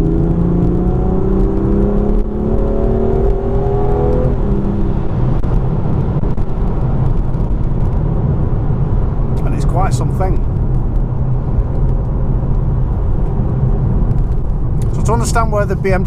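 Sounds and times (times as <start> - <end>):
car engine revving from inside: 0.0 - 6.1
road noise: 0.0 - 16.0.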